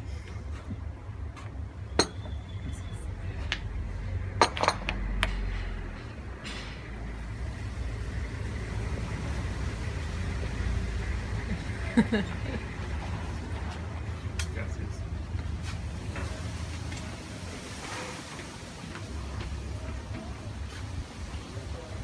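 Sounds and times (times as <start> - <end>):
low steady rumble: 0.0 - 22.0
tableware clinking: 1.9 - 2.4, 4.4 - 5.5.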